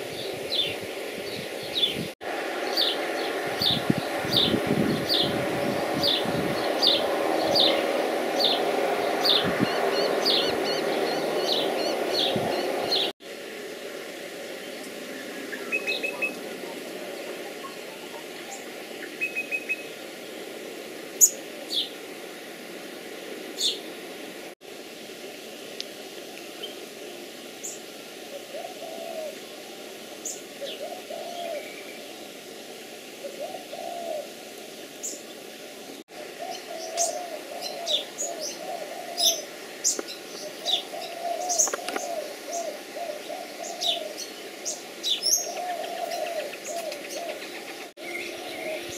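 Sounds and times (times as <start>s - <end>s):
birds chirping: 0.0s - 13.2s, 14.3s - 22.0s, 23.3s - 24.3s, 27.6s - 32.4s, 33.2s - 34.3s, 35.0s - 48.9s
dove cooing: 28.3s - 29.9s, 30.5s - 32.0s, 33.2s - 34.4s, 36.1s - 48.9s.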